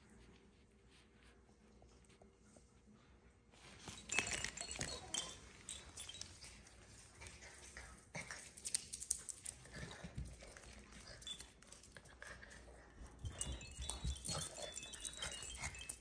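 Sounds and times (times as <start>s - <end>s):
claws and toy clicking on wood: 8.2s - 16.0s.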